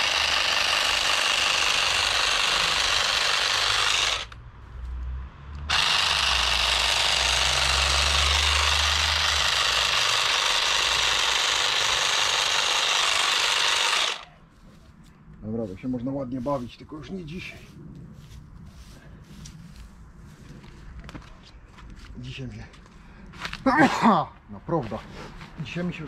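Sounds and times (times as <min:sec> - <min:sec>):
electric shrub trimmer buzzing: 0:00.0 - 0:04.4, 0:05.6 - 0:14.3.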